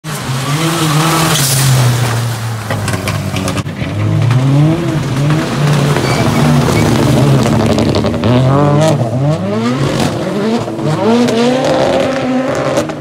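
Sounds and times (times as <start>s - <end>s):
race car engine revving: 0.1s - 13.0s.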